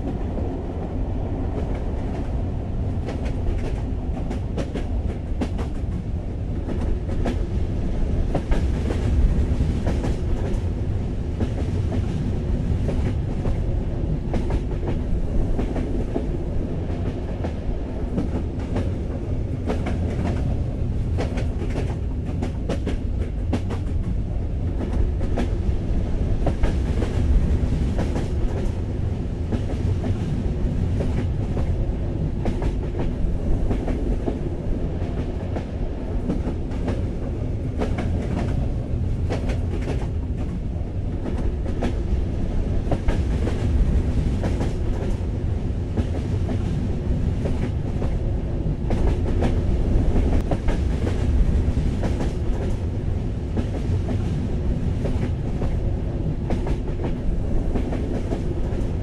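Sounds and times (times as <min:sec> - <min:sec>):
train low rumble: 0:00.0 - 0:59.0.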